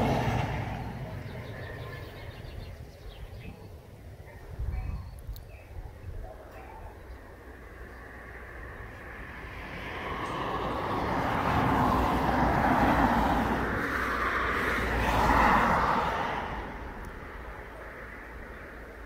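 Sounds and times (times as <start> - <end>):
cars driving past: 0.0 - 3.2, 7.3 - 19.0.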